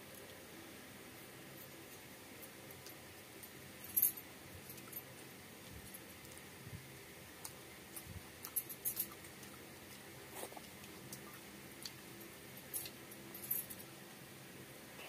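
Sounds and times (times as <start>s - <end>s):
chewing: 7.4s - 12.1s.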